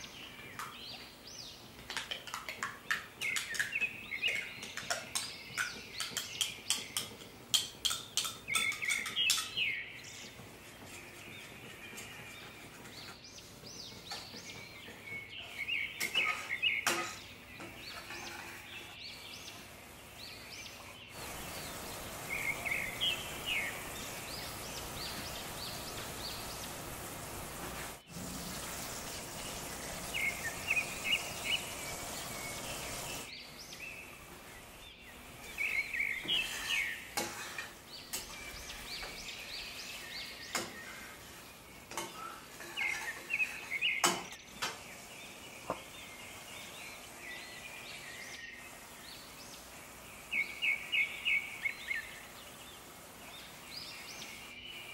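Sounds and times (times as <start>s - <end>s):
birds chirping: 0.0s - 54.9s
spoon stirring in a pan: 10.3s - 19.0s, 35.5s - 44.9s
food sizzling in a pan: 21.2s - 33.3s, 35.2s - 47.6s.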